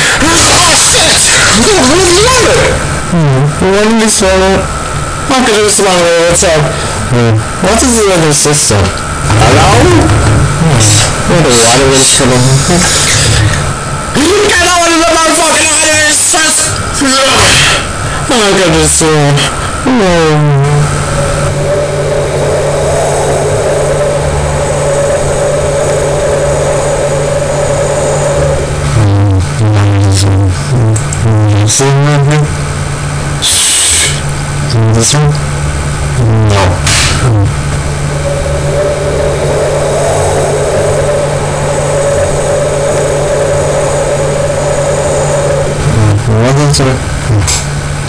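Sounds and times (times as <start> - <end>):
distorted two-tone drone: 0.0 - 48.0
noisy hiss: 0.0 - 48.0
harsh hiss: 33.4 - 34.4.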